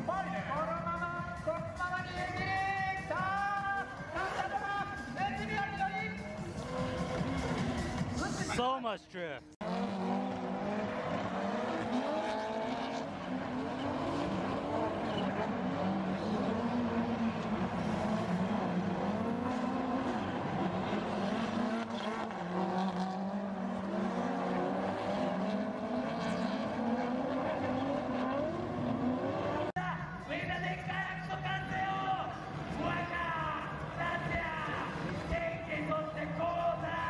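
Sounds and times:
car engines revving hard: 3.8 - 8.4, 9.5 - 29.8, 32.2 - 37.0.

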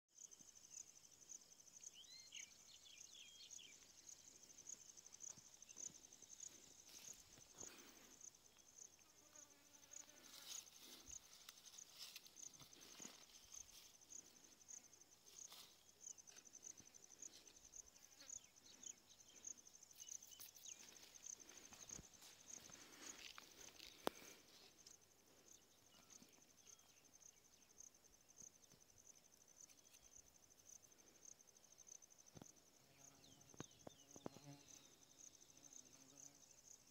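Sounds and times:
cricket chirping: 0.1 - 36.9
rustling of plants: 5.2 - 8.3, 9.7 - 26.5.

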